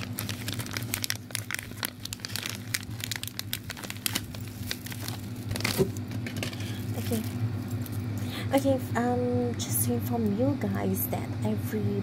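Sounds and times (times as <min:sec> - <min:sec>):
foil packaging crinkling: 0:00.0 - 0:08.4
low steady hum: 0:00.0 - 0:12.0.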